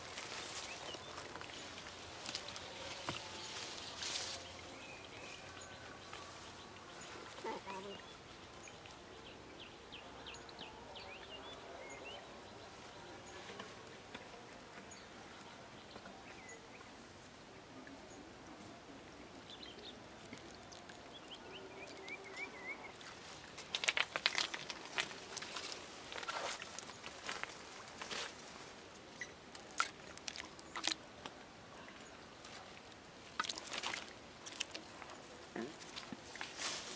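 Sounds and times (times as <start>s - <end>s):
brush crackling and rustling: 0.0s - 7.9s, 21.8s - 31.4s, 32.4s - 36.9s
faint rural background: 0.0s - 36.9s.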